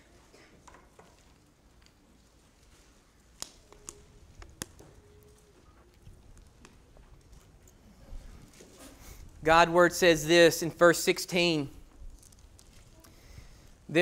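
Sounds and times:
faint sharp clicks and taps: 3.4 - 7.8.

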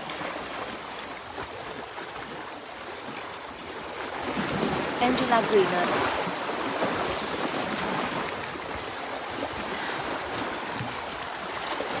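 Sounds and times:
sea waves splashing on rocks: 3.9 - 12.0.

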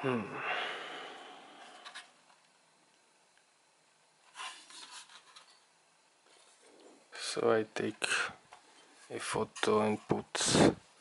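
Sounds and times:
plastic and metal rubbing in hands: 4.2 - 5.6.

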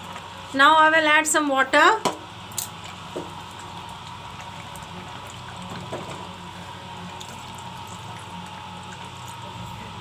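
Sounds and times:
water pouring into a pot: 2.5 - 10.0.

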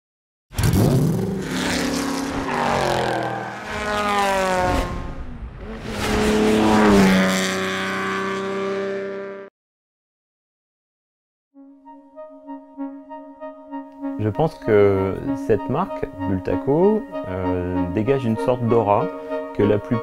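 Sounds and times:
vehicle engine revving: 0.6 - 9.5.

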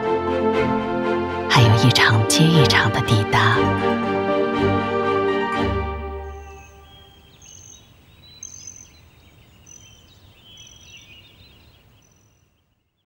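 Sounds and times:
birds whistling and chirping: 6.2 - 12.4.

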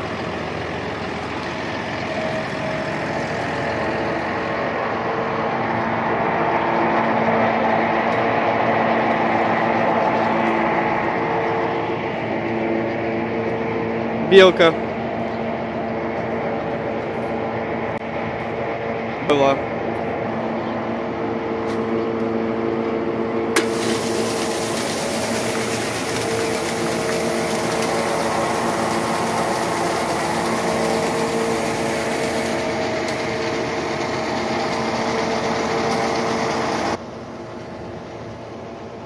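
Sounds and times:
grain auger humming: 22.6 - 37.0
grain hissing as it pours: 23.6 - 32.6.

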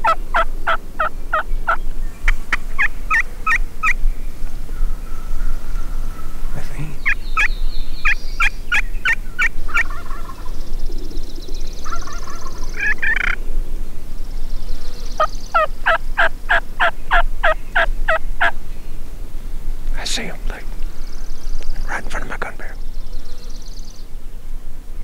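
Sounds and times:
turkey yelping: 0.0 - 1.4, 5.7 - 10.5, 11.8 - 13.4, 15.6 - 18.5.

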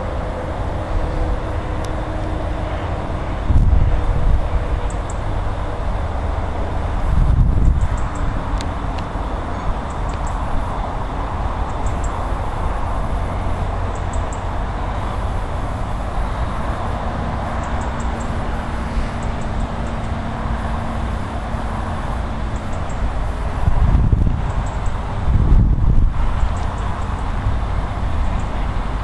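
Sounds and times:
steam locomotive rumble: 0.0 - 29.0
faint high ticks: 7.6 - 10.4, 11.7 - 12.2, 26.4 - 27.3.

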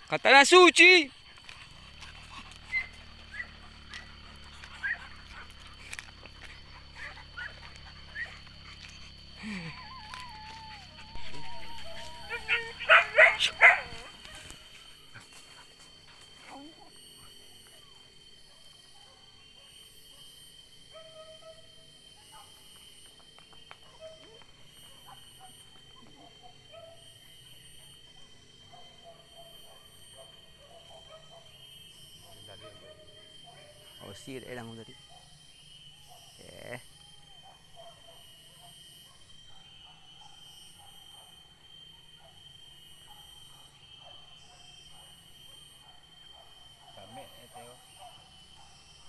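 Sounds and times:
high insect drone: 0.0 - 49.0
short high calls: 9.4 - 14.6.

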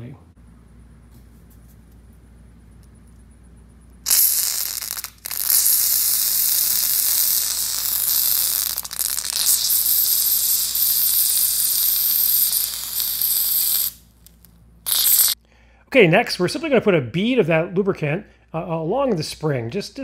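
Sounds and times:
aerosol spray hiss: 4.1 - 14.0, 14.9 - 15.4.

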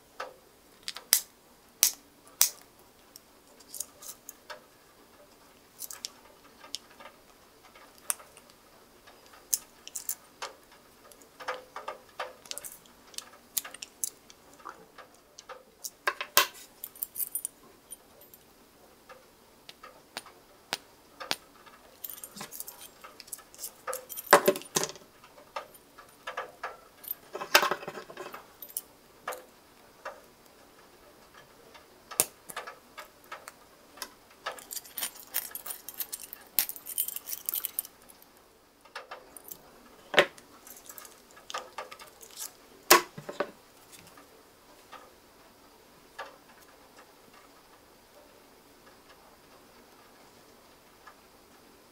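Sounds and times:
small metal clicks and scrapes: 0.2 - 50.3
keys jangling on ring: 16.9 - 17.5, 22.0 - 24.7, 34.6 - 38.1.

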